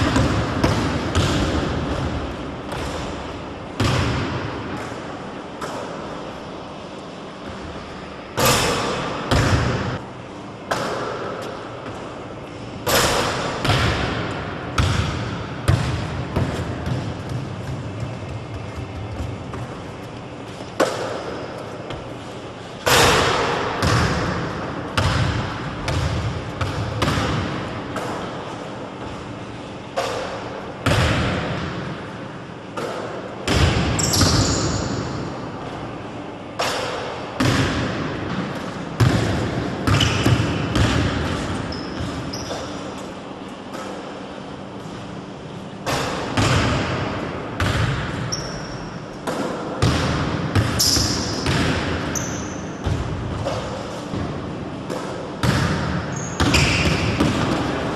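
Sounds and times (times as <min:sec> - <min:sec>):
basketball bouncing on wooden floor: 0:00.0 - 0:03.1, 0:14.8 - 0:20.2, 0:23.8 - 0:28.1, 0:49.8 - 0:54.3
shoes squeaking on court: 0:15.8 - 0:22.7, 0:34.0 - 0:35.1, 0:39.9 - 0:45.8, 0:48.2 - 0:49.0, 0:50.6 - 0:54.2, 0:56.0 - 0:57.8.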